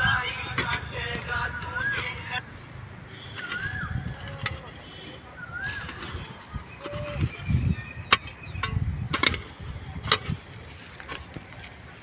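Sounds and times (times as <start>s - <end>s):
bird whistle: 3.1s - 4.1s, 4.8s - 8.1s
hoe chopping into dry soil: 3.3s - 4.8s, 8.1s - 11.4s.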